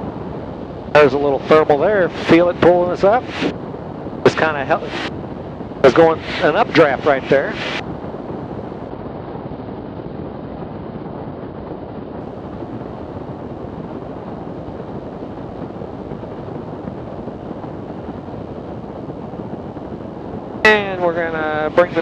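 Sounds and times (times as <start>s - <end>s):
aircraft engine and propeller: 0.0s - 8.9s, 20.6s - 22.0s
rushing airflow: 0.0s - 8.9s.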